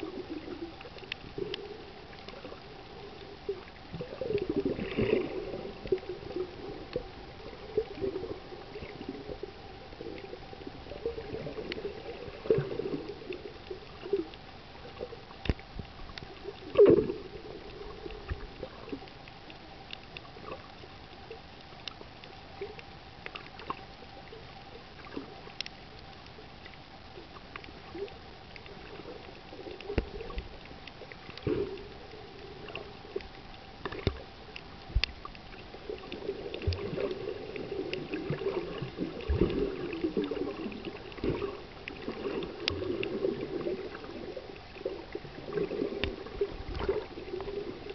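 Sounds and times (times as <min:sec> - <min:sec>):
faint clicks: 0:00.0 - 0:47.9
faint steady hum: 0:00.0 - 0:47.9
underwater gurgling and sloshing: 0:00.0 - 0:47.9.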